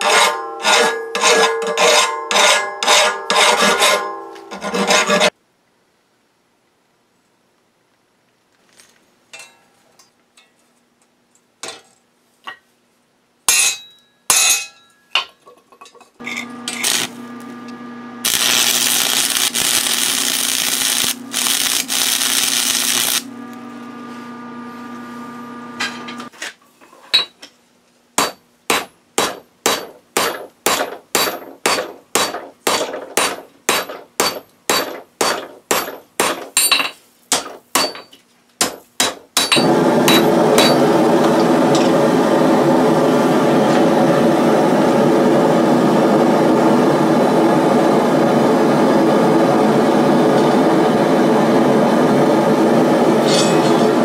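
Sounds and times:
hammer striking steel on anvil: 0.0s - 4.6s, 13.5s - 15.3s, 28.2s - 42.0s, 53.2s - 54.0s.

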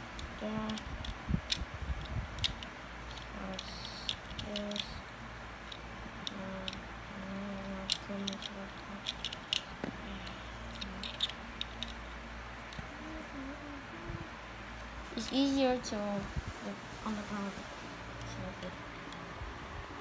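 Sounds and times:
plastic lego bricks clicking: 0.1s - 5.0s, 5.6s - 12.0s.

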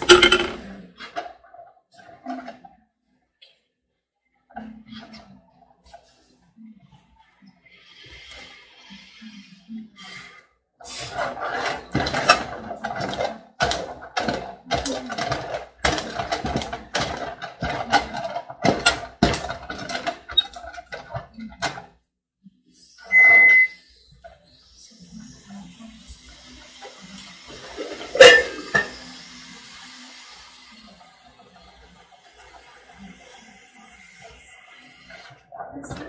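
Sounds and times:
stick beating dough in a pot: 11.2s - 21.8s
short high beep: 23.0s - 23.8s.

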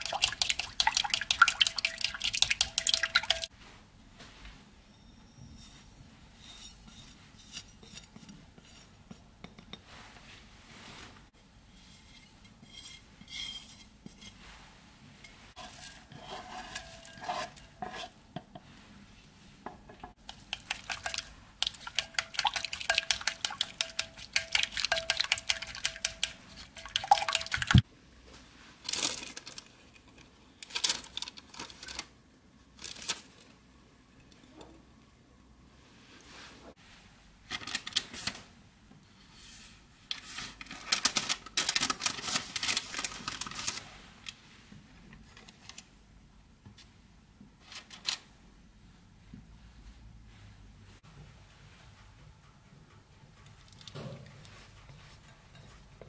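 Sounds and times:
utensil clinking in ceramic bowl: 0.0s - 3.5s, 20.3s - 27.8s.

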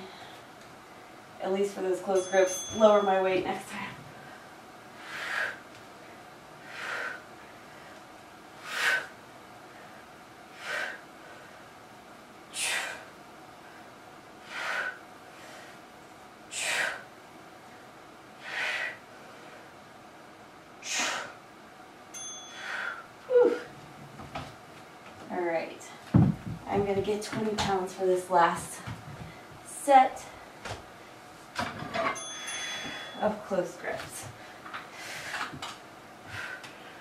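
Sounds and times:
woman breathing forcefully: 3.7s - 11.9s, 12.5s - 19.9s, 20.8s - 21.4s, 22.5s - 23.7s, 32.4s - 33.3s, 34.3s - 37.0s.

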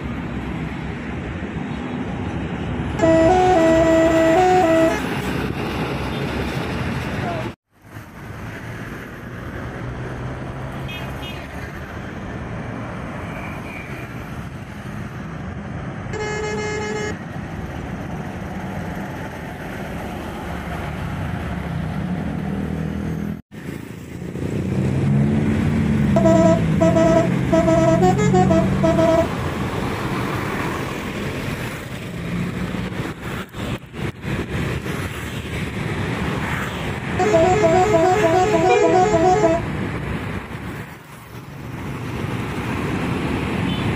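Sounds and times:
bus engine rumble: 0.0s - 43.9s
traffic: 0.0s - 43.9s
short horn note: 3.0s - 5.1s
multi-tone bus horn tune: 3.0s - 5.2s, 16.1s - 17.2s, 26.1s - 29.4s, 37.1s - 39.7s.

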